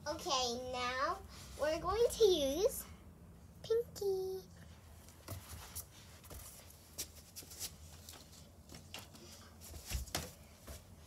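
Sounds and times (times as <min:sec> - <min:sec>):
low room hum: 0:00.0 - 0:11.0
faint knocks clicks and rustles: 0:05.0 - 0:11.0.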